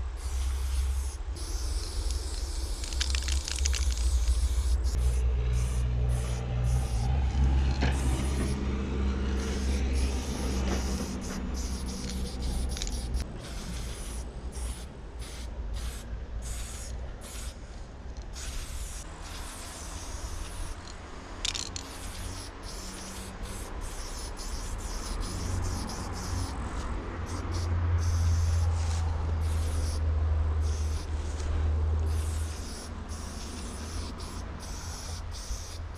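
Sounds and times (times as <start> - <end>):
spray-paint can hissing: 0.0 - 8.7, 9.3 - 17.6, 18.2 - 30.0, 30.6 - 31.4, 32.0 - 35.9
low droning hum: 0.0 - 23.8.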